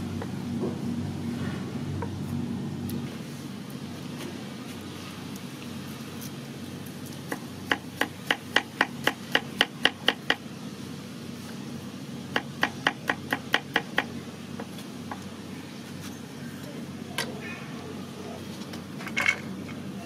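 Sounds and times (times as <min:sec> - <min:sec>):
cleaver chopping on wooden board: 0:07.3 - 0:10.4.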